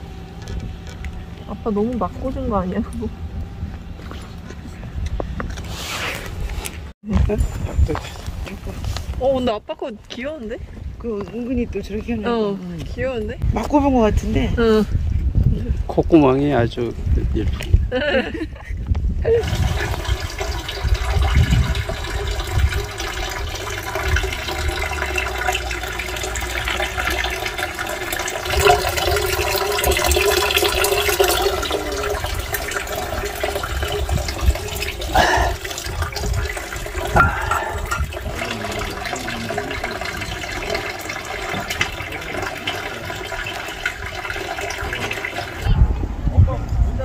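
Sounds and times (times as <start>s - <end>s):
water running into stone basin: 19.2s - 45.8s.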